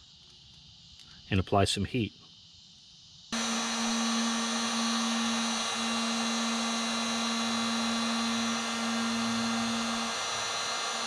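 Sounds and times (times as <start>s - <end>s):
heat gun running: 3.4s - 11.0s.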